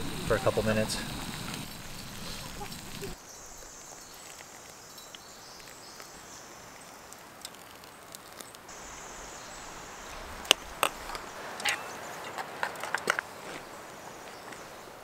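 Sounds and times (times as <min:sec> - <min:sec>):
spoons scraping enamel bowls: 0:10.1 - 0:13.2.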